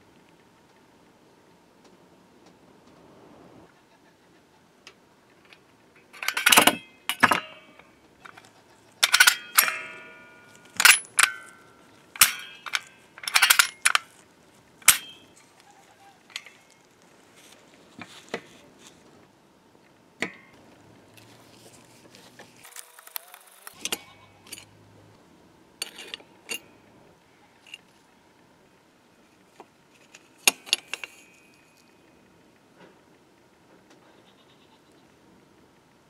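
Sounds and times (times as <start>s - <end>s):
metal hardware clinking on wood: 5.4s - 8.4s, 9.0s - 14.2s, 14.8s - 15.6s, 16.3s - 16.9s, 23.7s - 24.8s, 25.8s - 26.8s, 29.6s - 32.0s.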